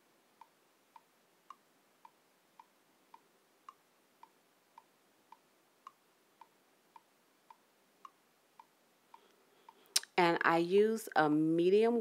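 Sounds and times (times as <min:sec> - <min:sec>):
faint regular ticking: 0:00.3 - 0:10.1.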